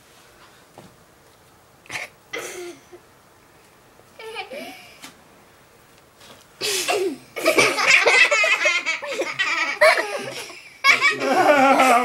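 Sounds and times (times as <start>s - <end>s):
people laughing hard: 7.4s - 12.0s.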